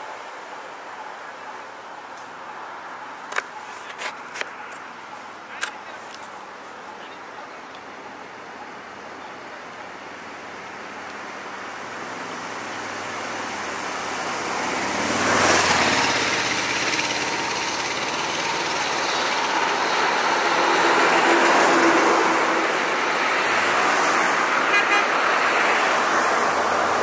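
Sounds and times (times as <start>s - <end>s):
vehicles passing close by: 0.0s - 27.0s
lorry engine approaching: 11.3s - 24.6s.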